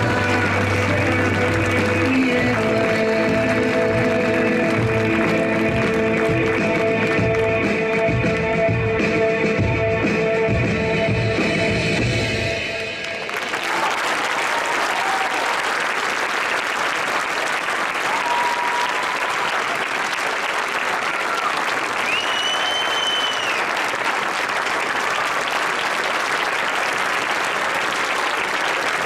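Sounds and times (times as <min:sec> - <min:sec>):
audience applauding: 0:00.0 - 0:08.4, 0:13.0 - 0:29.0.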